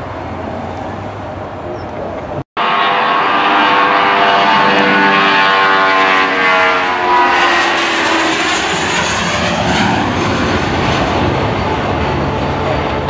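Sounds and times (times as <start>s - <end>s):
jet engine roar: 0.0s - 13.0s
jet engine whine: 0.0s - 13.0s.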